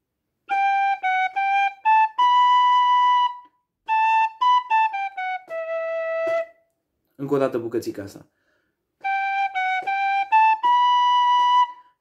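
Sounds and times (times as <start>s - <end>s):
wooden flute melody: 0.4s - 6.8s, 9.0s - 12.0s
breath: 8.3s - 8.9s.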